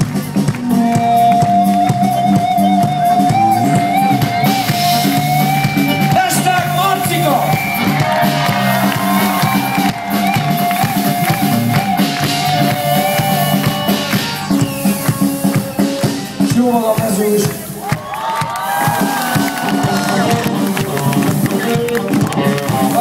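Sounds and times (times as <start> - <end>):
bass: 0.0 - 23.0
drum kit: 0.0 - 23.0
electric guitars: 0.0 - 23.0
wavering melody line: 0.8 - 16.5.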